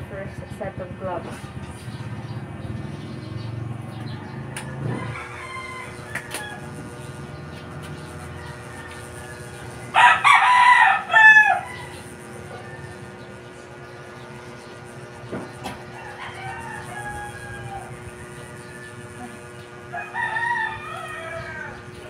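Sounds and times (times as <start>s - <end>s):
rooster crowing: 4.0s - 7.2s, 8.1s - 13.4s, 15.8s - 22.0s.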